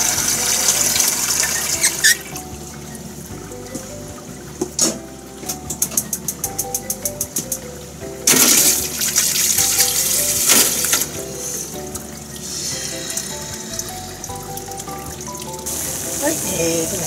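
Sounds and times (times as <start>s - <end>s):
tap water running into sink: 0.0s - 2.5s, 8.3s - 17.0s
background music: 0.0s - 17.0s.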